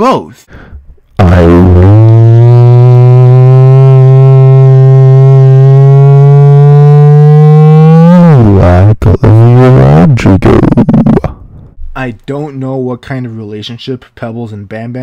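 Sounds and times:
man holding a low note: 0:01.2 - 0:11.3.

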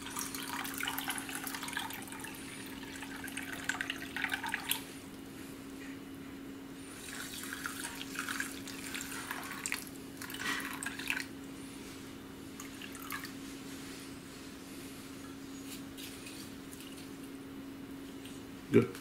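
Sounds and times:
water pouring into glass container: 0:00.0 - 0:04.8
steady low hum: 0:00.0 - 0:19.0.

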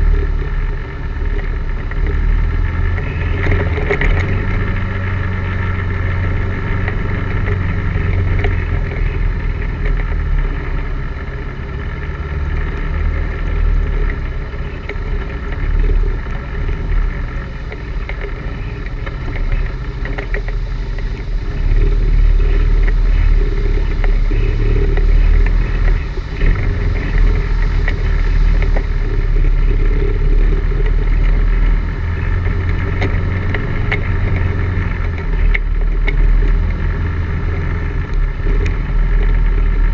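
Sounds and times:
atv engine running: 0:00.0 - 0:39.9
knocks and rattles over bumps: 0:00.0 - 0:39.9.

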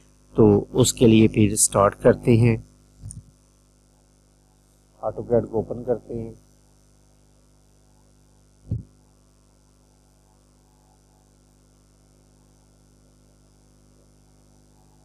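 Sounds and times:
faint electrical mains hum: 0:00.0 - 0:15.0
short low thump: 0:08.7 - 0:08.9.

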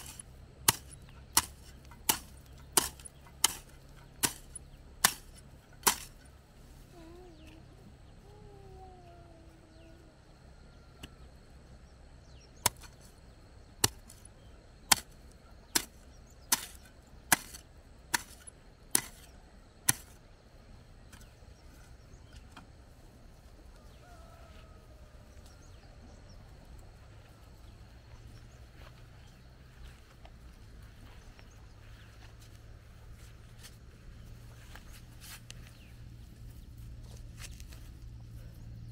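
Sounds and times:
hoe chopping into soil: 0:00.0 - 0:06.3, 0:12.6 - 0:13.1, 0:13.8 - 0:20.2.

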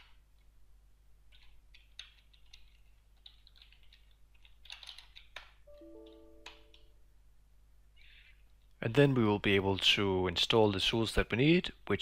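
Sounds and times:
typing on keyboard: 0:01.3 - 0:06.9.

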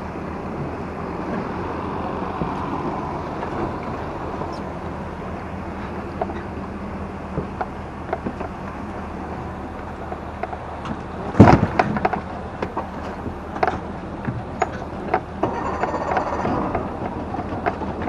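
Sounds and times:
road and engine rumble: 0:00.0 - 0:18.0
rattles and clicks: 0:10.1 - 0:18.0.

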